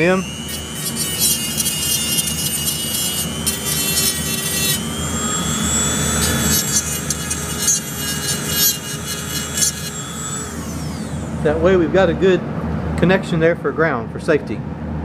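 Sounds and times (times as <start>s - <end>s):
rotary tool grinding metal: 0.0s - 11.6s.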